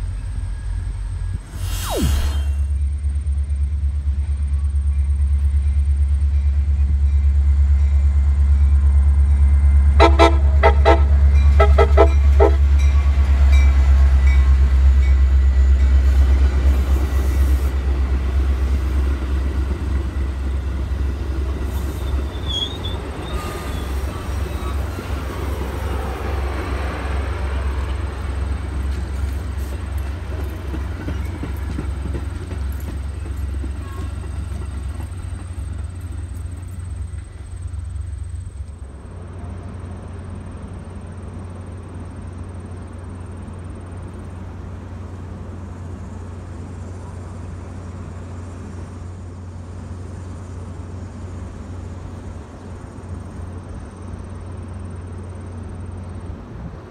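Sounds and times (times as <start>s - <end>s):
diesel locomotive engine rumble: 0.0s - 56.9s
train wheels on rails: 0.0s - 56.9s
train horn toots: 9.9s - 13.2s, 33.7s - 34.4s.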